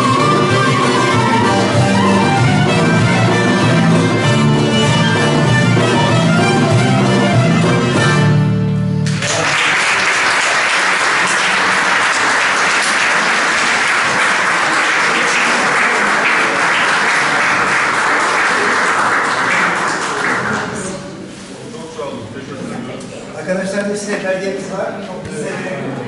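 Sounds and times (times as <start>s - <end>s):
folk ensemble music: 0.0s - 9.2s
audience applauding: 9.0s - 21.1s.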